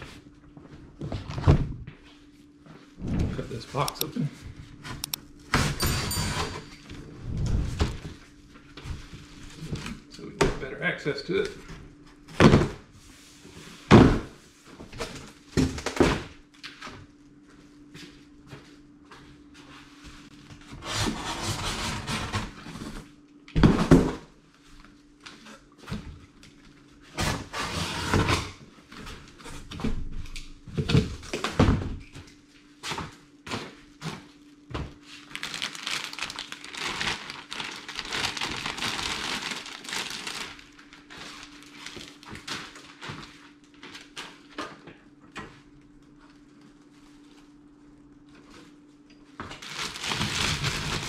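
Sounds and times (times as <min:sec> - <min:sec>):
plastic wrapping crinkling: 0:35.2 - 0:44.5, 0:49.6 - 0:51.0.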